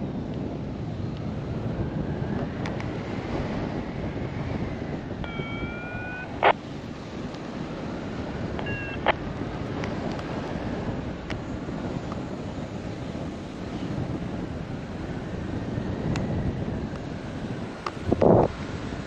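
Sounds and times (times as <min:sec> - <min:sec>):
wind buffeting microphone: 0:00.0 - 0:19.0
electronic tone: 0:05.2 - 0:06.6, 0:08.6 - 0:09.2.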